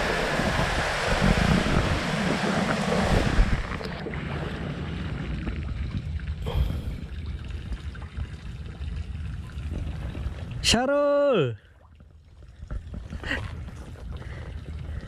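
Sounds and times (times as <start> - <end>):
wind buffeting microphone: 0.0 - 10.6.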